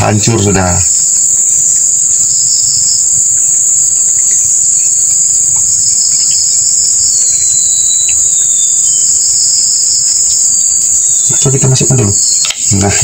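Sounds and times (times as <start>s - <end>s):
high-pitched insect chorus: 0.0s - 13.0s.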